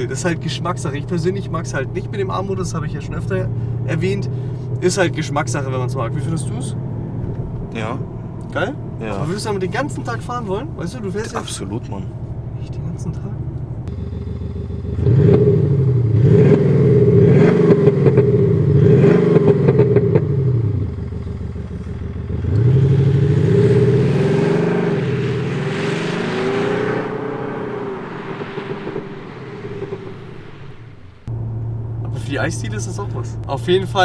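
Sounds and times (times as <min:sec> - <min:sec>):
exhaust crackles: 0:00.0 - 0:34.0
synthetic exhaust note revving: 0:13.9 - 0:32.2.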